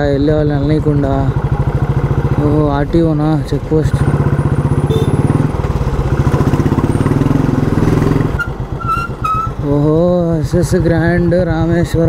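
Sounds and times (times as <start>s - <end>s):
motorcycle engine running: 0.0s - 12.0s
short high beeps: 4.9s - 5.3s.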